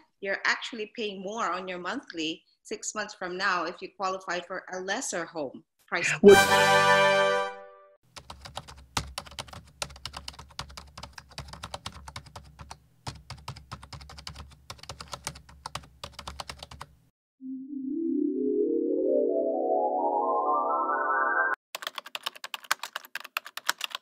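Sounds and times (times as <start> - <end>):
rising synthesized tone: 6.1 - 7.6, 17.4 - 21.6
keyboard typing clicks: 21.8 - 24.0.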